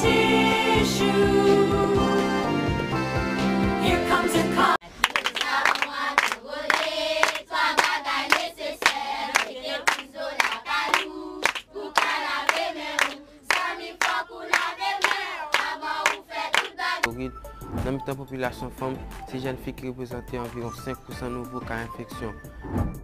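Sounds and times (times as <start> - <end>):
group of voices singing: 0.0 - 2.8, 3.8 - 17.1
hand-clapping: 5.0 - 16.8.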